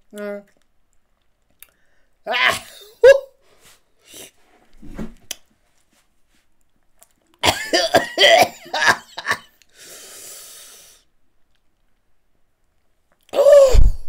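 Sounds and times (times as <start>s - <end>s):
man coughing: 7.4s - 9.5s
hissing breath through teeth: 9.7s - 11.1s.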